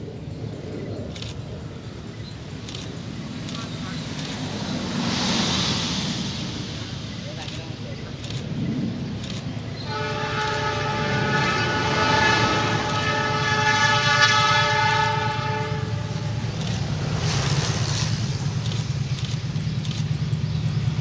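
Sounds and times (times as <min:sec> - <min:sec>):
low train rumble: 0:00.0 - 0:21.0
locomotive horn blast: 0:09.8 - 0:17.4.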